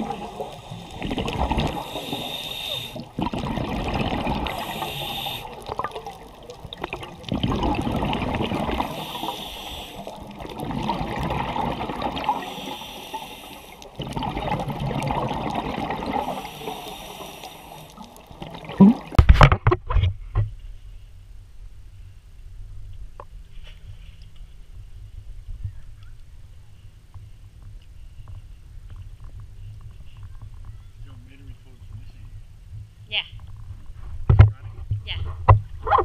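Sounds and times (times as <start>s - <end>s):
diver breathing through regulator: 0.0s - 3.2s, 4.3s - 5.8s, 8.8s - 10.2s, 12.3s - 14.0s, 16.1s - 18.1s
exhaled bubbles rushing: 0.0s - 12.8s, 13.8s - 17.3s, 17.9s - 19.3s.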